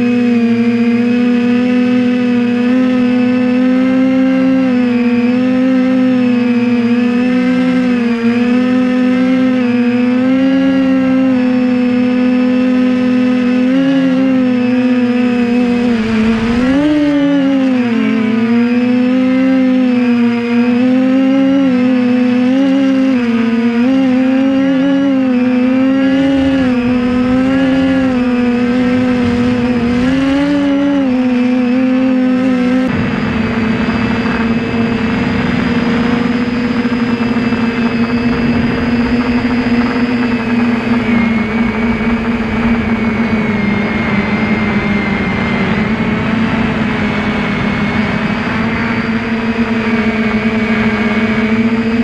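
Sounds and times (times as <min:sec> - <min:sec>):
quadcopter motors buzzing: 0:00.0 - 0:52.0
rushing air: 0:15.7 - 0:17.4, 0:26.1 - 0:49.5.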